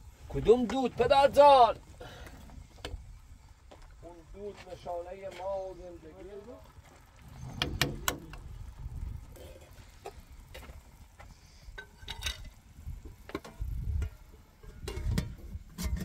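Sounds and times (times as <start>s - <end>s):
metal ladle scraping a pot: 14.6s - 16.0s
pot lid clanking: 14.6s - 16.0s.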